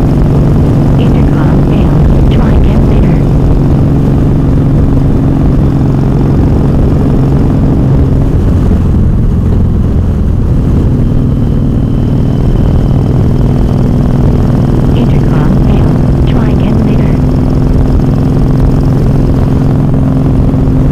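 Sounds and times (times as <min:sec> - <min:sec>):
motorcycle engine cruising: 0:00.0 - 0:20.9
wind and road noise: 0:00.0 - 0:20.9.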